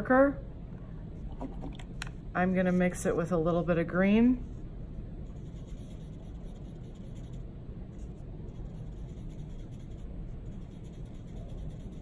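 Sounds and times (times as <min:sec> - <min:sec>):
paintbrush scraping palette: 0:04.4 - 0:12.0.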